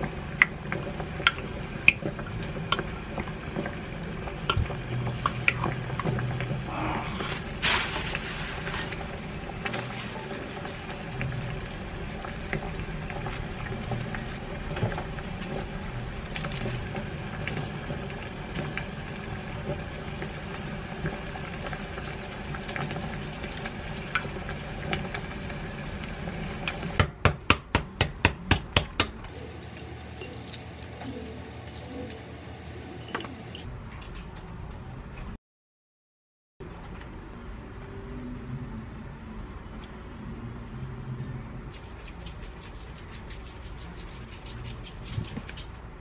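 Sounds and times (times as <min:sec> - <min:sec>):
spoon stirring in glass mug: 0:29.3 - 0:33.7.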